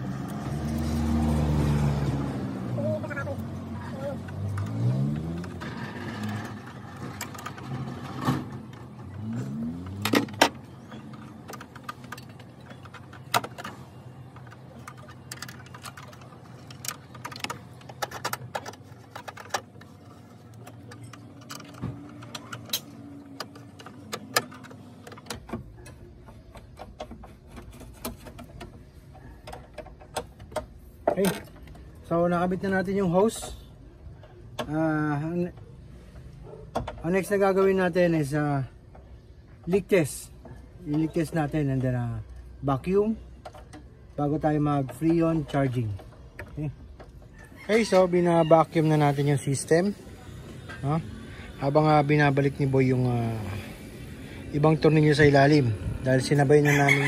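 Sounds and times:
metal tools clinking: 4.2s - 28.5s.

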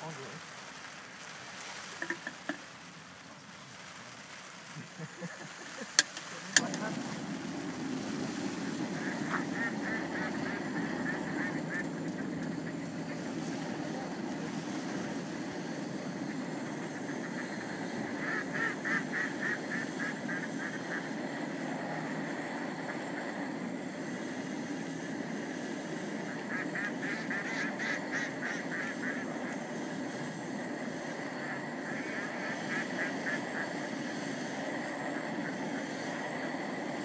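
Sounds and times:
geese honking: 8.5s - 21.5s, 26.2s - 29.9s, 31.2s - 36.3s.

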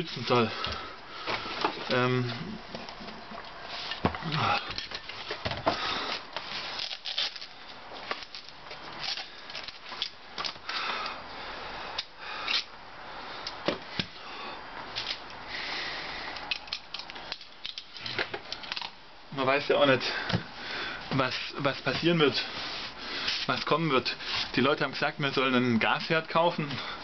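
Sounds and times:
handling rubbing and rustling: 1.2s - 10.6s
breathing through nose: 15.4s - 16.4s, 20.1s - 21.1s.

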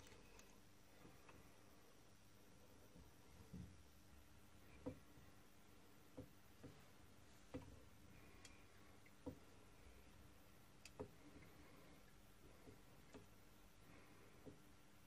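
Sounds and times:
faint metallic clicks and taps: 7.5s - 9.5s, 10.8s - 11.3s, 12.5s - 13.4s.

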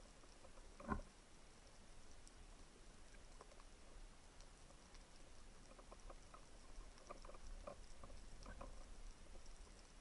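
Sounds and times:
low hiss: 0.0s - 10.0s
underwater clicks and pops: 0.3s - 1.1s.

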